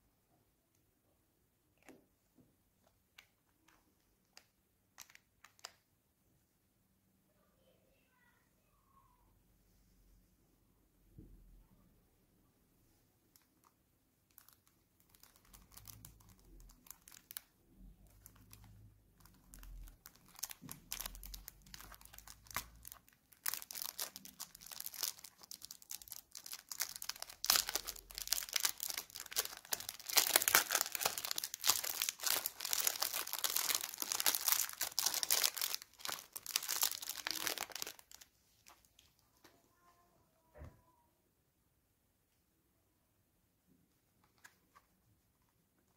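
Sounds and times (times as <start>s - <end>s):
cellophane wrap crinkling: 5.0s - 5.8s, 13.3s - 39.2s.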